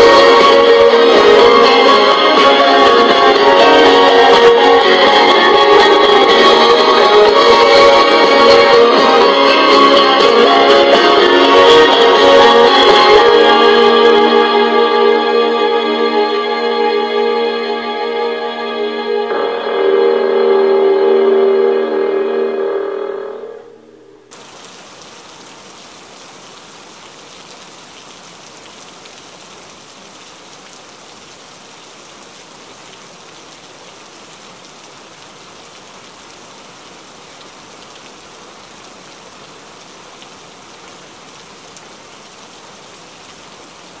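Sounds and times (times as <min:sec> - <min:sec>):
music: 0:00.0 - 0:24.3
steady hiss like rain: 0:00.0 - 0:44.0.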